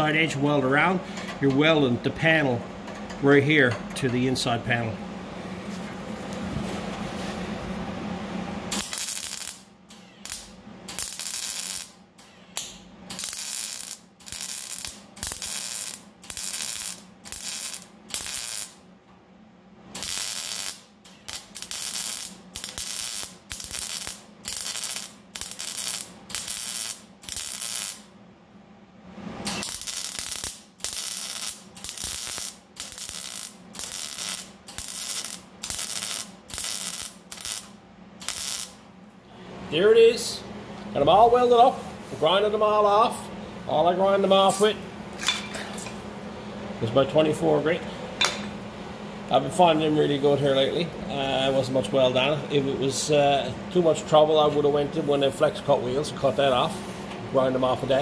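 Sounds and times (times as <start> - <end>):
welder crackling: 8.6 - 18.8, 19.9 - 28.1, 29.3 - 38.8.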